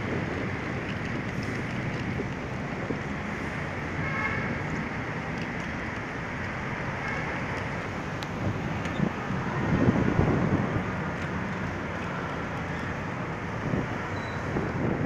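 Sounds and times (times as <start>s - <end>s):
road traffic: 0.0s - 15.0s
vehicle horn toot: 4.0s - 4.6s.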